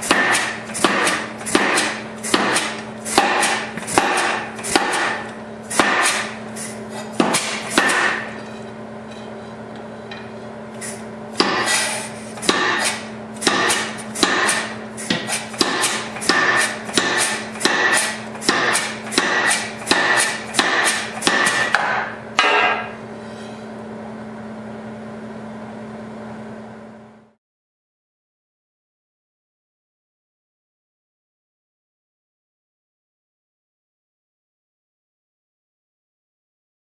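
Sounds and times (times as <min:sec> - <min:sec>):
power hammer striking steel: 0:00.0 - 0:08.6, 0:11.4 - 0:23.0
steady hum: 0:00.0 - 0:27.4.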